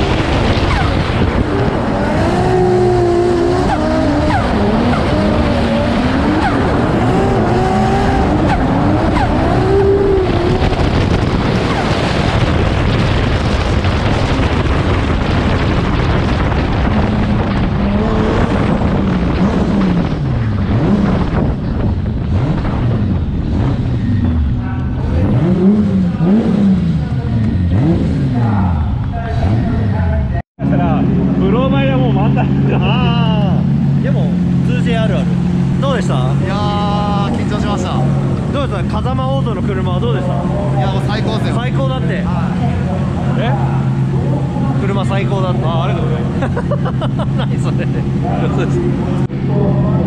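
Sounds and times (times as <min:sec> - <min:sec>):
wind noise: 0:00.0 - 0:28.3
car engine revving: 0:00.0 - 0:50.0.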